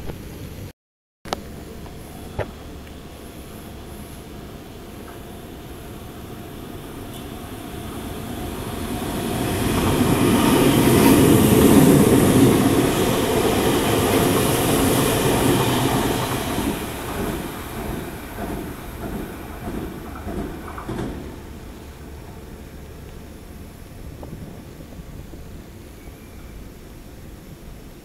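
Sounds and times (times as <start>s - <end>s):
electric train rushing past: 2.0s - 27.8s
wheels clacking over rail joints: 8.7s - 22.4s.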